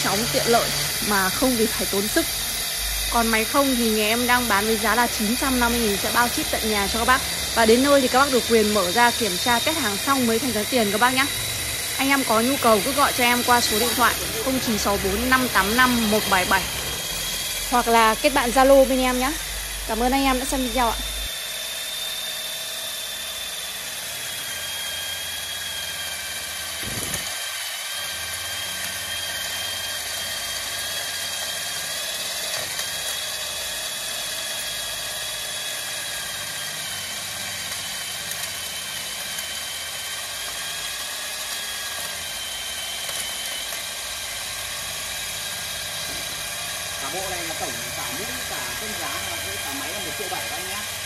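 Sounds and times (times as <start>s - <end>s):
core drill cutting into wall: 0.0s - 51.0s.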